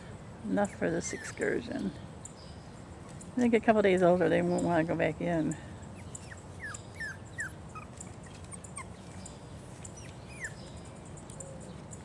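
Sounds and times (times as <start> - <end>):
puppies whimpering: 0.5 - 1.9, 5.9 - 10.8.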